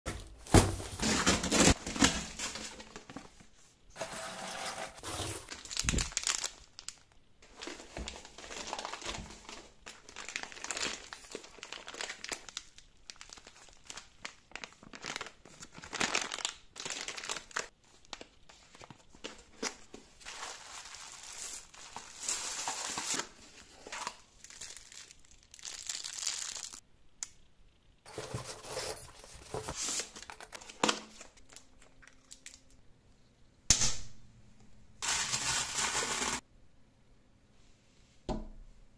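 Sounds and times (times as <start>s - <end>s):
cardboard flaps rustling: 0.1s - 3.1s, 28.1s - 30.5s
plastic film crinkling: 5.0s - 26.8s.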